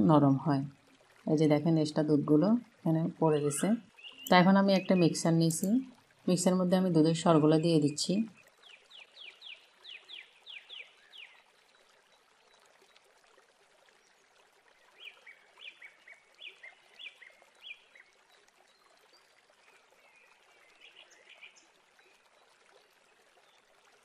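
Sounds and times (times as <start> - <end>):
faint bird chirping: 3.3 - 5.6.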